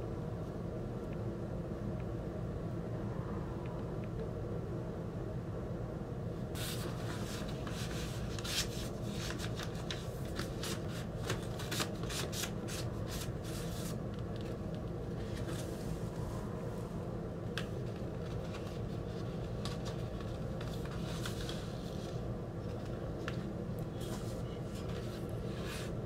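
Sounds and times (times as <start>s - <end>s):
steady low hum: 0.0s - 26.0s
paper sleeve rustling and scraping: 6.6s - 16.1s, 17.8s - 23.0s.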